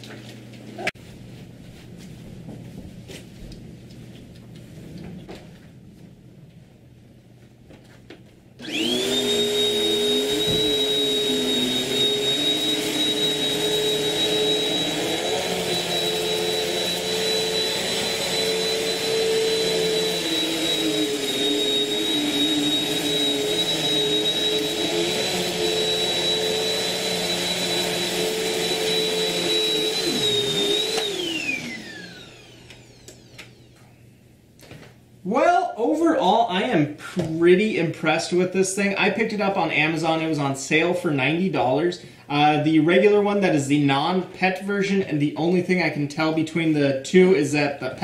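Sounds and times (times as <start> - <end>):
vacuum cleaner motor whining: 8.6 - 34.0.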